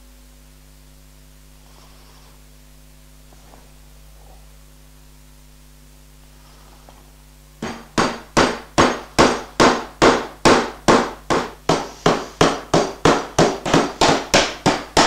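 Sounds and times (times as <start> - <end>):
mallet knocking on wood: 7.6 - 15.0.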